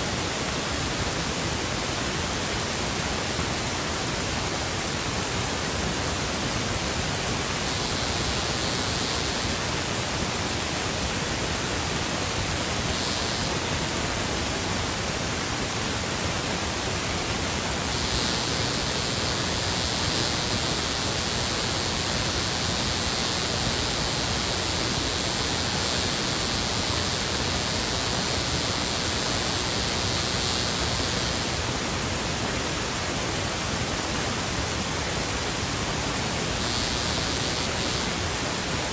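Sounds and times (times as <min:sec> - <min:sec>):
steady static hiss: 0:00.0 - 0:38.9
sharp high hiss: 0:05.9 - 0:14.7, 0:17.0 - 0:32.0, 0:36.0 - 0:38.9.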